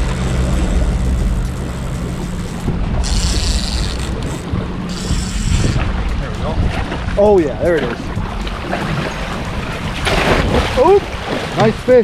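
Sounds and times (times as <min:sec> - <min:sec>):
high-pitched buzzing rasp: 0:00.0 - 0:05.9
wind on microphone: 0:00.0 - 0:11.6
boat engine running: 0:00.0 - 0:12.0
water noise: 0:00.0 - 0:12.0.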